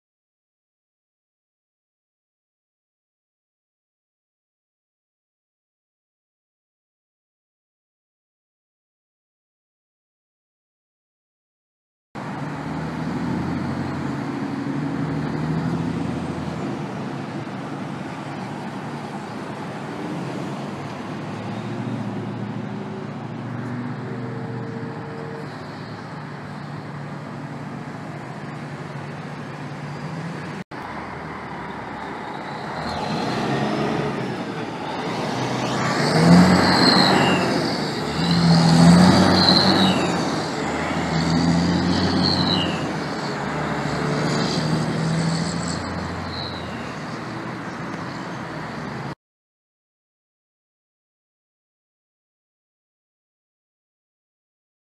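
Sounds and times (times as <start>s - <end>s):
diesel truck engine pulling away: 12.2s - 49.2s
road traffic: 12.2s - 49.2s
turbocharger whistle: 35.5s - 43.4s, 45.3s - 47.0s.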